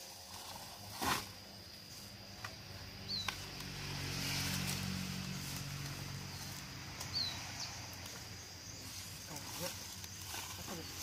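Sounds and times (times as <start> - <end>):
low engine hum: 2.1 - 10.3.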